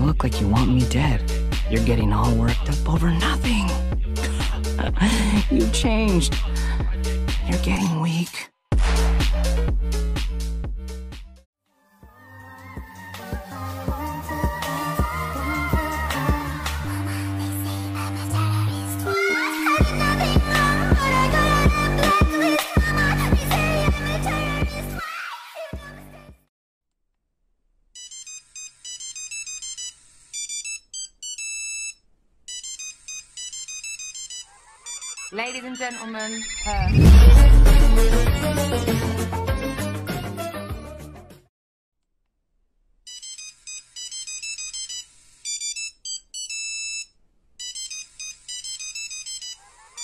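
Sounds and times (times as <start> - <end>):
electronic ringtone melody: 28.0 - 36.6, 43.1 - 50.0.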